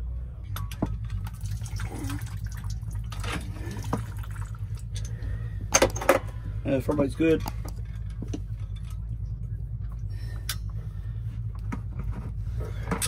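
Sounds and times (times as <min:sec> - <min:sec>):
low hum: 0:00.0 - 0:13.0
fluid dripping and trickling: 0:01.0 - 0:05.2.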